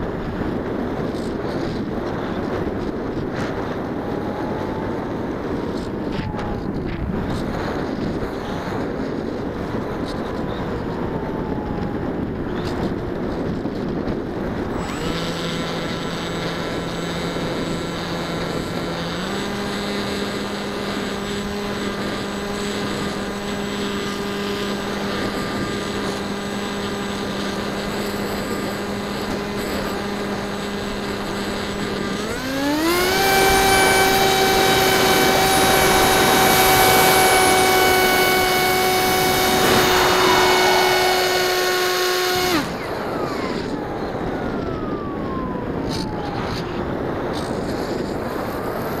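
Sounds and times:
wind rush: 0.0 - 26.4, 31.1 - 49.0
electric motor and propeller whine: 0.0 - 49.0.

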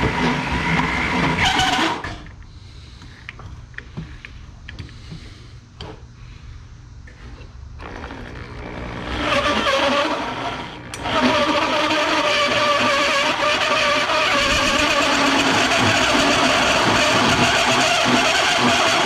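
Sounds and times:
power drill cutting metal sheet: 0.0 - 2.1, 7.8 - 19.0.

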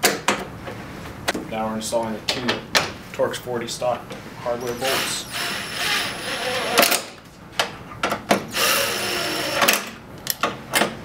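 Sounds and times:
cordless drill driving bolts: 4.6 - 7.1, 8.5 - 10.0.

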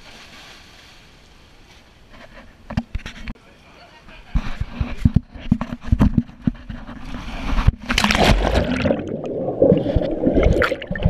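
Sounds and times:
knocks and thumps: 4.4 - 8.7
loud splash: 8.0 - 11.0.

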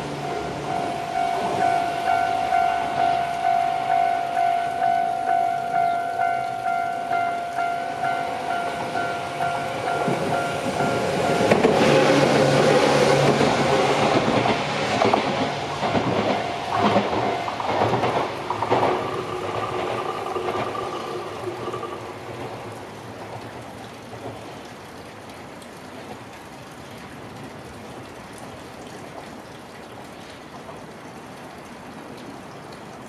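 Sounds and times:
electric train passing: 0.0 - 22.9
level-crossing alarm dinging: 0.2 - 11.6
train wheels clicking over rail joints: 9.8 - 22.2.

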